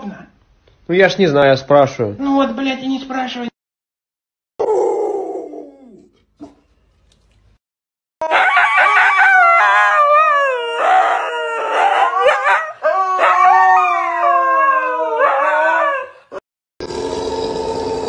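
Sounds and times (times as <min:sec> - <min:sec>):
dog howling: 0:04.6 - 0:06.6, 0:08.2 - 0:16.4.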